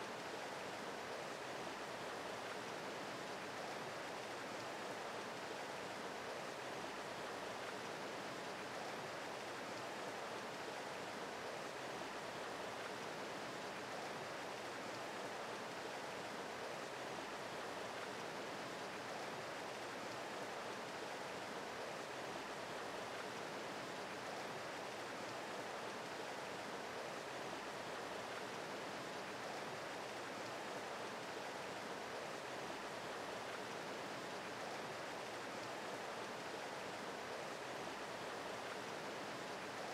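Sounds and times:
creek water rushing: 0.0s - 39.9s.

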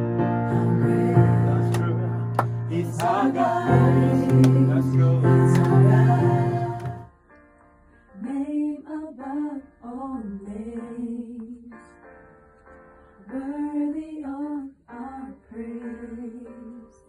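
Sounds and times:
person singing gospel melody: 0.5s - 7.1s.

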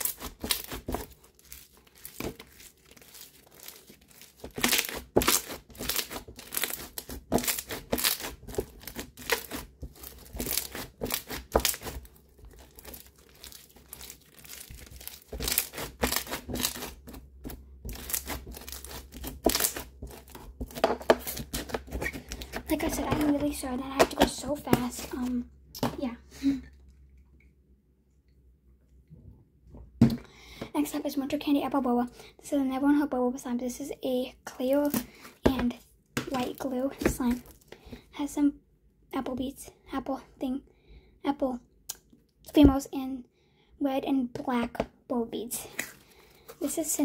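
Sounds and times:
slime crunching and popping: 0.0s - 22.7s.

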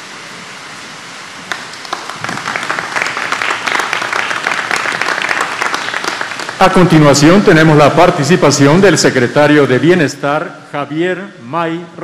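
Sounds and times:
room noise hiss: 0.0s - 12.0s
audience applause: 1.5s - 7.8s.

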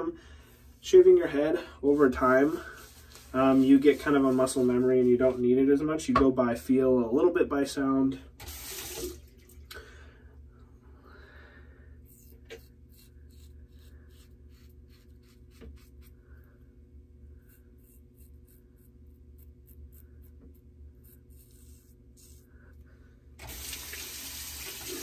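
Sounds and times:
razor scratching hair: 12.1s - 16.2s, 17.4s - 22.5s.

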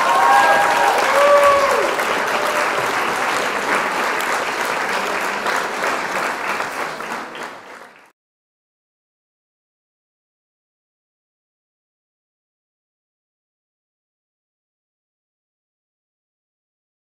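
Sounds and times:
high calls from crowd: 0.0s - 3.3s
crowd applauding and cheering: 0.0s - 8.1s.

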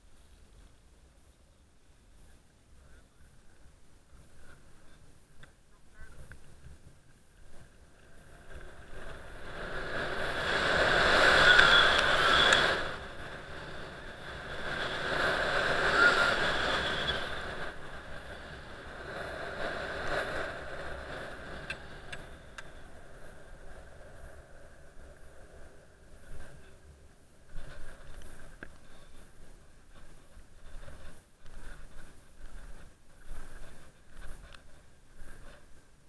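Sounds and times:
skis scraping over snow: 6.6s - 35.9s
wind rushing over microphone: 7.4s - 36.0s.

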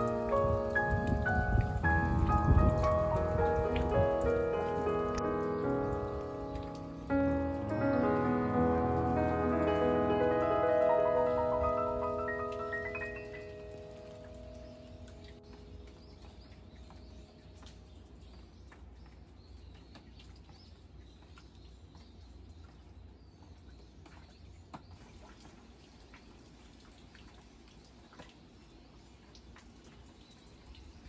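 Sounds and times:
low wind rumble: 0.0s - 18.2s
rain dripping onto wet ground: 0.0s - 31.0s.

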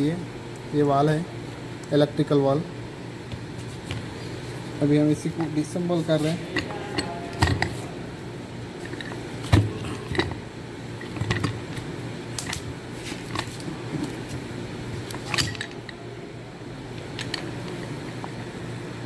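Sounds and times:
steady low hum: 0.0s - 19.0s
metal parts clinking: 15.2s - 16.0s.

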